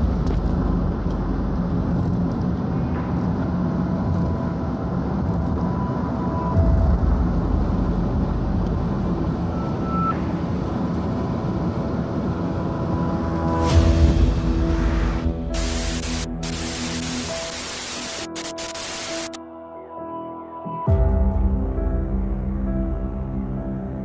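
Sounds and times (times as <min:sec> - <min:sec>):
road and engine rumble: 0:00.0 - 0:19.4.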